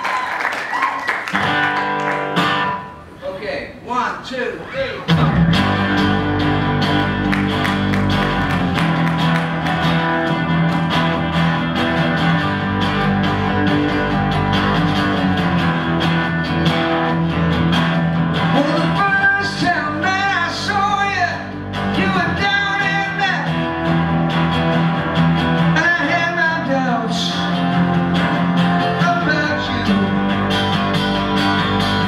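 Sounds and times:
acoustic guitars strumming: 1.3 - 3.2, 4.6 - 32.0
man singing: 18.5 - 23.6, 25.7 - 27.8, 28.8 - 30.4.

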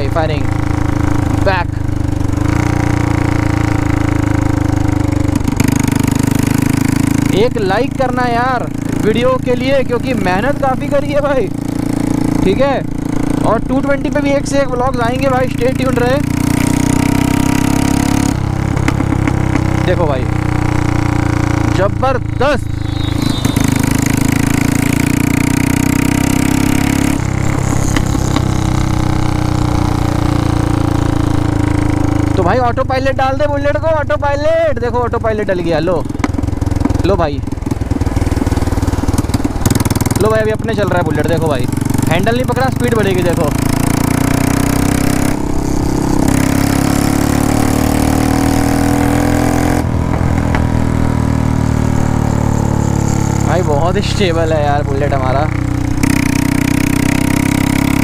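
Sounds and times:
motorcycle engine thumping: 0.4 - 7.9, 16.2 - 32.4, 35.9 - 40.7, 41.5 - 52.2
exhaust pops: 18.4 - 20.1, 35.9 - 40.7, 49.8 - 51.2.

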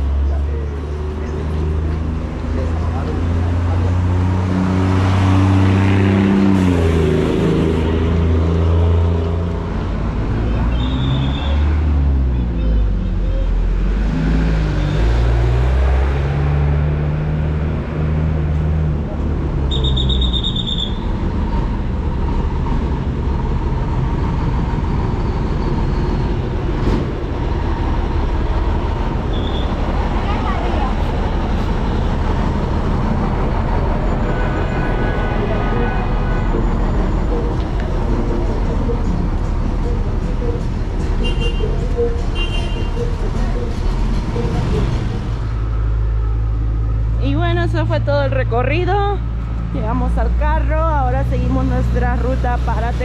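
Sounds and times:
vehicle engine running: 35.4 - 53.0.

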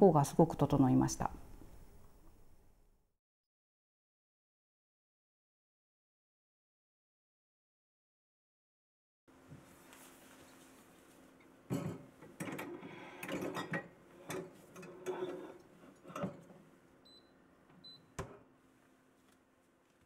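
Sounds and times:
rustling: 9.6 - 11.3.

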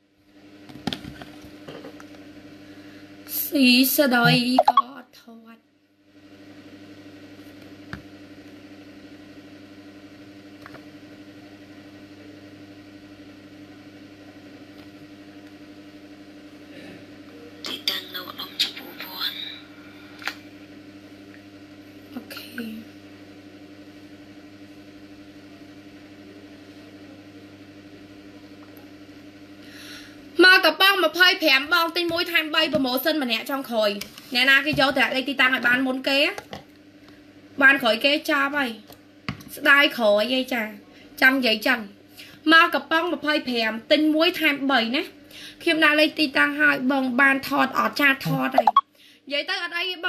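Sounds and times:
electric fan humming: 0.3 - 5.1, 6.0 - 49.6.

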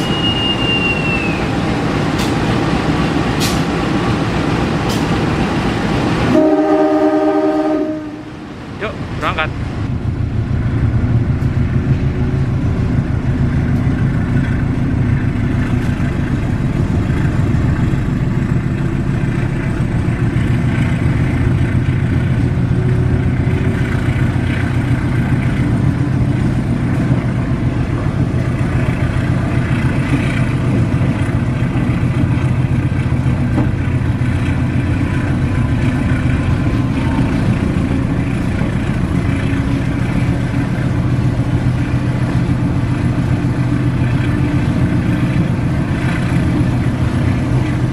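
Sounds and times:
locomotive engine humming: 0.0 - 47.9.

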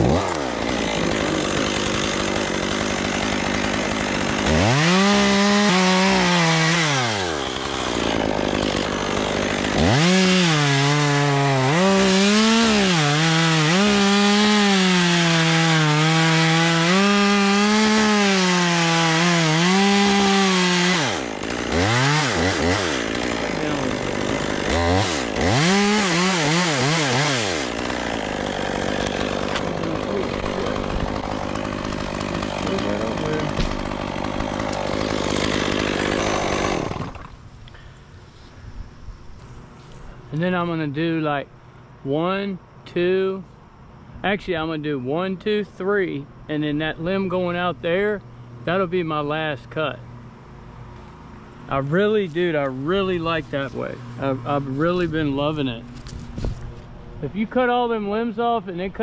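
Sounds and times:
chainsaw cutting wood: 0.0 - 37.8.

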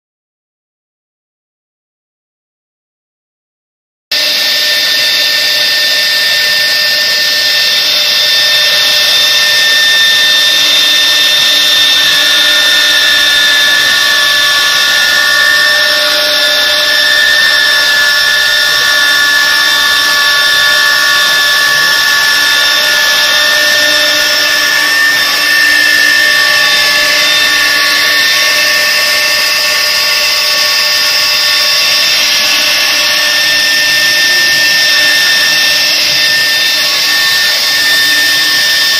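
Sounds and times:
cnc router spindles whining: 4.1 - 38.9
lower steady tones: 4.1 - 38.9
hiss of cutting: 4.2 - 38.9.

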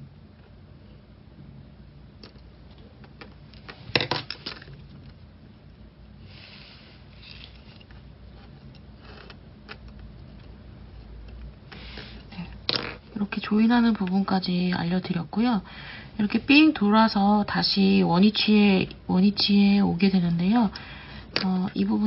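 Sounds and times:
soft scrape: 6.2 - 9.3.

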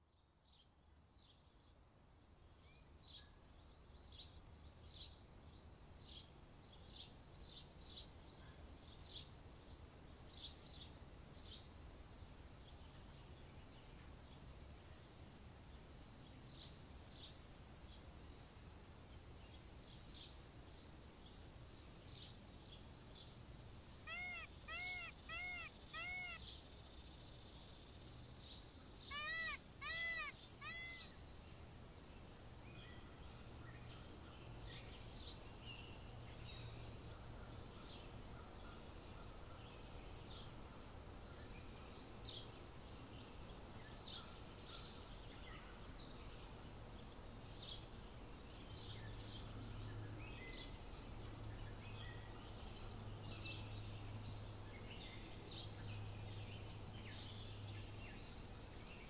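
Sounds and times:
small birds chirping: 16.1 - 59.0
peafowl calling: 24.0 - 26.4, 29.1 - 31.1.

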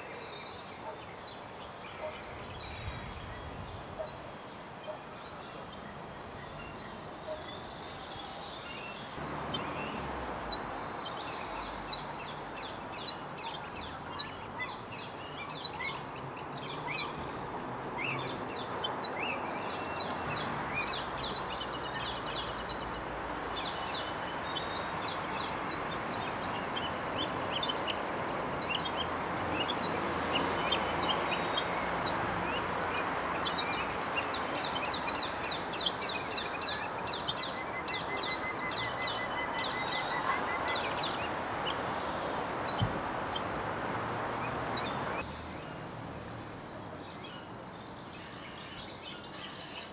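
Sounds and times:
bird chirps: 4.8 - 41.9.

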